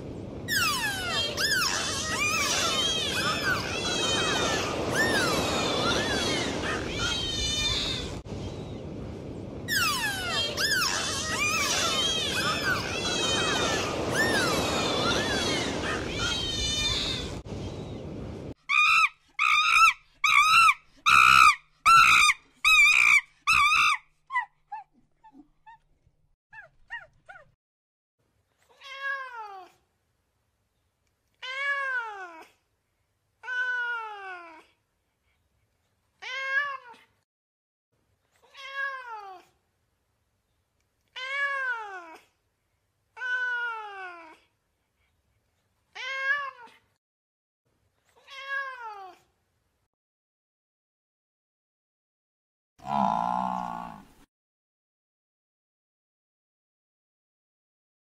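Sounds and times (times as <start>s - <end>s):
monkey calling: 0.5s - 7.9s, 18.7s - 24.9s.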